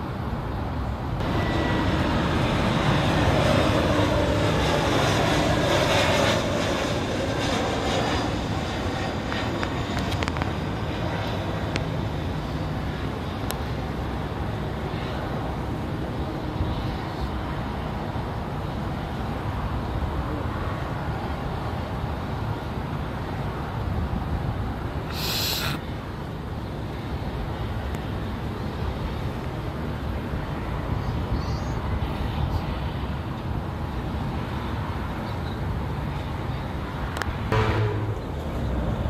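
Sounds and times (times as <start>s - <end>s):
distant jet engines rumbling: 1.2s - 15.1s, 24.8s - 26.0s, 37.3s - 39.0s
brief sharp hiss: 25.1s - 25.8s.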